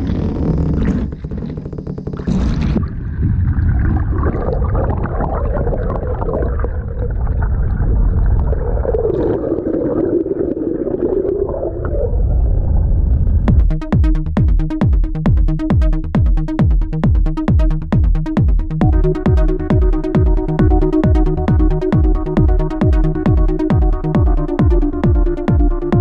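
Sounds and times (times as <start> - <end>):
muffled water rushing and gurgling: 0.2 - 13.7.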